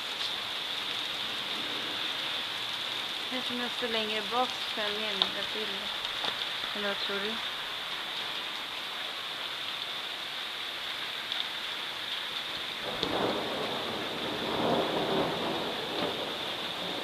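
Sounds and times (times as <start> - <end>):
steady rain hissing: 0.0 - 17.0
thunder rumbling: 12.8 - 17.0.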